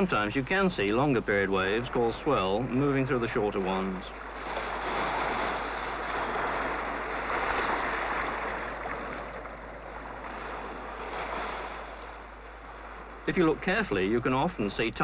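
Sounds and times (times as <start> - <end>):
sea waves washing: 0.0 - 15.0.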